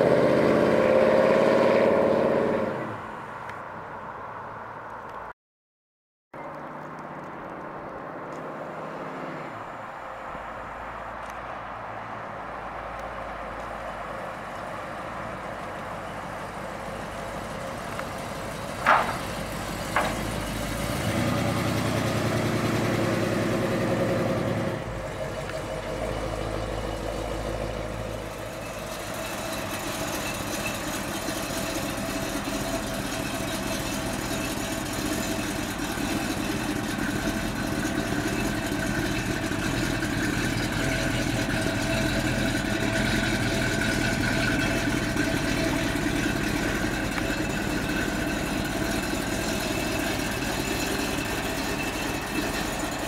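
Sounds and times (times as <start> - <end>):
vee eight engine idling: 13.6 - 23.0, 24.8 - 53.0
sharp engine knocks: 18.8 - 20.6.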